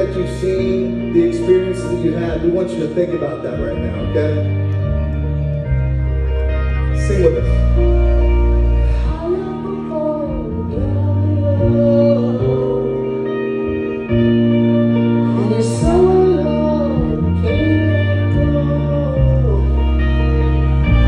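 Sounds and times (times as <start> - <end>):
bass line: 0.0 - 21.0
guitar chords: 0.0 - 21.0
person singing: 8.6 - 21.0.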